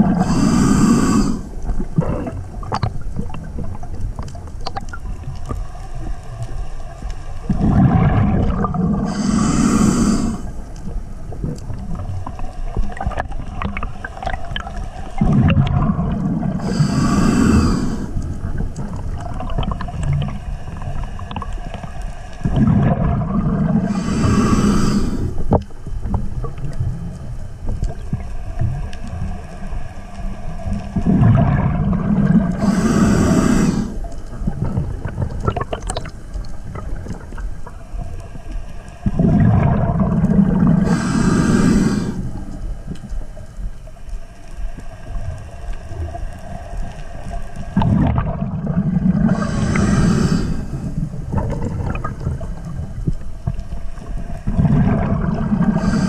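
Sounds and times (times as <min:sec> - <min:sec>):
diver breathing through regulator: 0:00.0 - 0:02.4, 0:08.7 - 0:10.6, 0:16.3 - 0:18.6, 0:23.6 - 0:25.5, 0:32.2 - 0:34.3, 0:40.5 - 0:42.8, 0:49.0 - 0:51.6, 0:55.3 - 0:56.0
low underwater rumble: 0:00.0 - 0:56.0.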